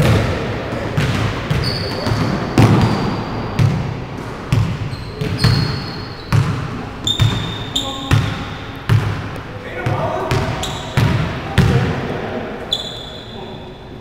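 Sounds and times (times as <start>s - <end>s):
sneakers squeaking: 0.0s - 12.0s, 12.6s - 14.0s
basketball bouncing on hardwood: 6.3s - 11.8s.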